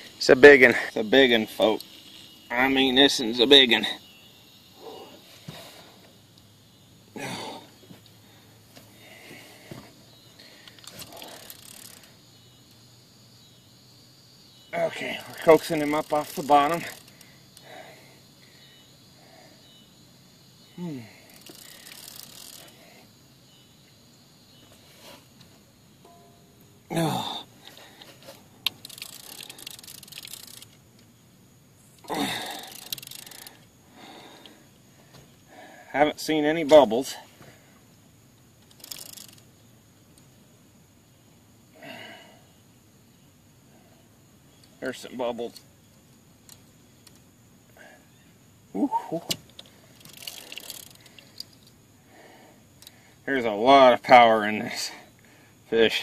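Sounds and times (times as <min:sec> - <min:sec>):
faint ticking hiss: 0:00.0 - 0:56.0
faint clicks: 0:10.4 - 0:12.8, 0:27.7 - 0:31.1, 0:31.9 - 0:33.7, 0:38.6 - 0:39.5, 0:45.5 - 0:47.3, 0:49.3 - 0:51.8, 0:52.8 - 0:53.0.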